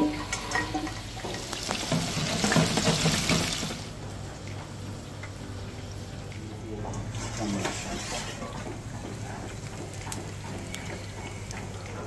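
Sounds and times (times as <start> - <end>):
hot oil sizzling: 0.0 - 4.0.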